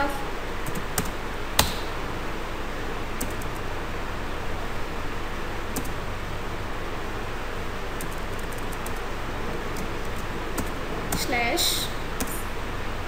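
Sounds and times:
background hiss: 0.0 - 13.0
keyboard keystroke clicks: 0.7 - 1.9, 5.8 - 6.0.

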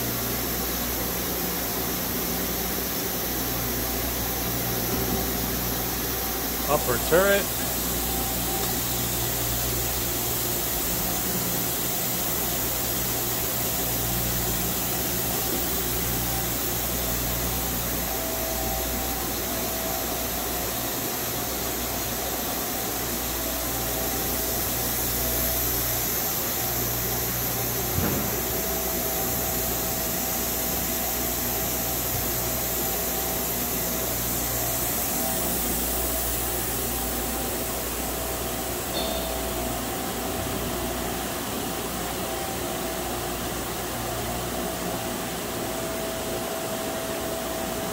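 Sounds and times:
machinery hum: 0.0 - 47.9.

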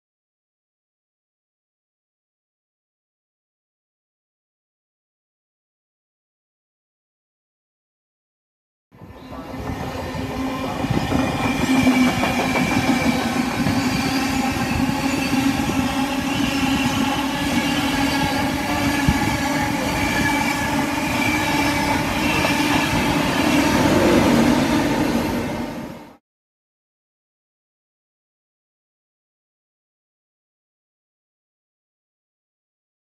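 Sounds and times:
train wheels clattering on rails: 9.6 - 24.8.

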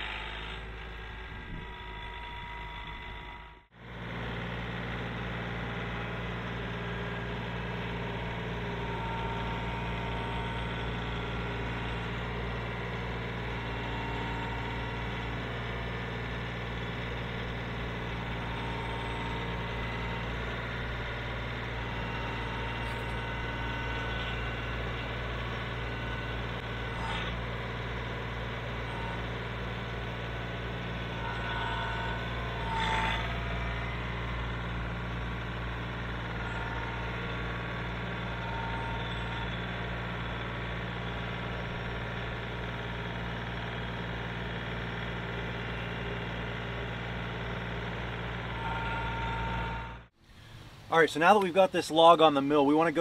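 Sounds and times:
diesel tractor engine running: 0.0 - 53.0
sharp squeal: 8.6 - 12.3, 18.2 - 27.4, 31.0 - 34.5, 36.2 - 40.2.

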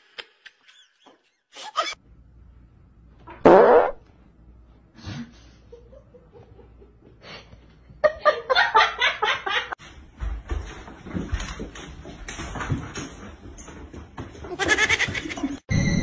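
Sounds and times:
person laughing: 14.6 - 15.6.

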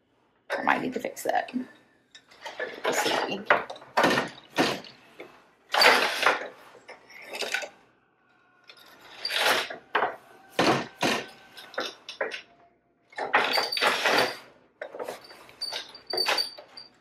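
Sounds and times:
wooden loom clattering: 2.3 - 5.0, 5.7 - 7.7, 8.7 - 12.4, 13.2 - 17.0.

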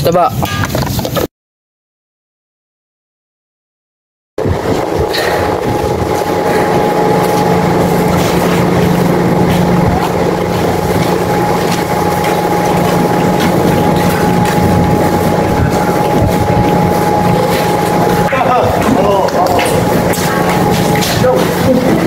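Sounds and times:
engine idling: 4.4 - 22.0.

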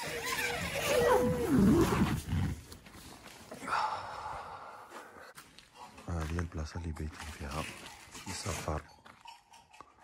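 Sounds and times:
animal wavering cry: 0.0 - 2.2.

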